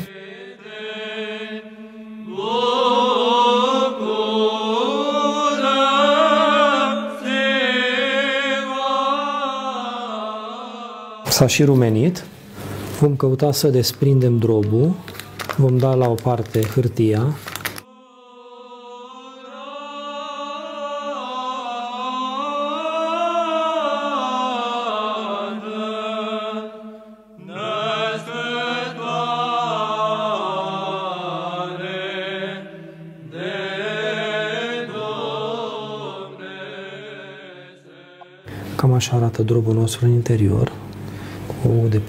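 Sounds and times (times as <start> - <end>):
men chanting: 0.0 - 11.5, 17.8 - 38.5.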